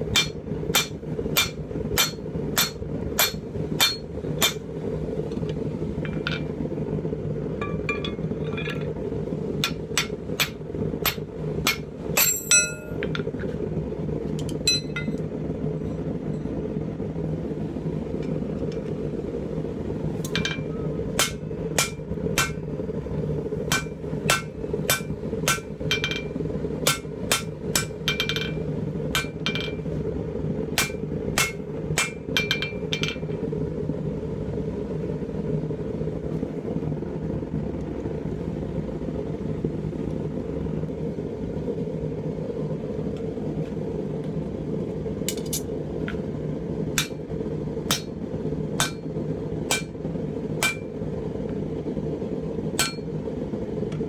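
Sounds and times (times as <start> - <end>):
steady low hum: 0.0 - 54.0
hammer blows ringing on anvil: 0.1 - 4.6, 9.6 - 13.0, 20.3 - 22.6, 23.7 - 28.6, 30.8 - 33.2, 47.0 - 47.2, 47.9 - 48.1, 48.8 - 49.1, 49.7 - 50.0, 50.6 - 50.9, 52.8 - 53.1.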